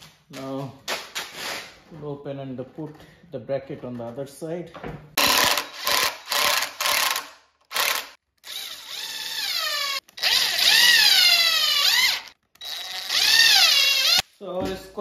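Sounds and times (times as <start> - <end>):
cordless drill driving screws: 5.2 - 14.3.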